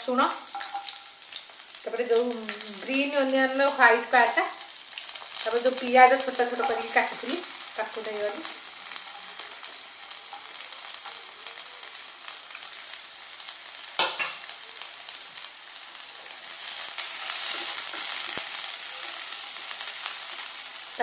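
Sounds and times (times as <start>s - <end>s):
vegetables sizzling in hot oil: 0.0s - 21.0s.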